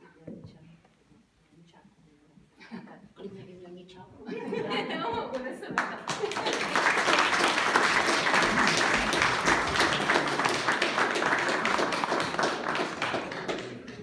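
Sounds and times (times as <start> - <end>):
audience applauding: 5.8 - 14.0.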